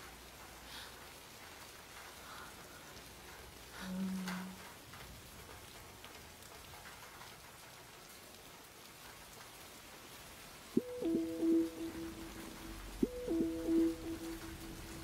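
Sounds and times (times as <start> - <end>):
rain pattering on surfaces: 0.0 - 15.0
held low musical tone: 10.8 - 15.0.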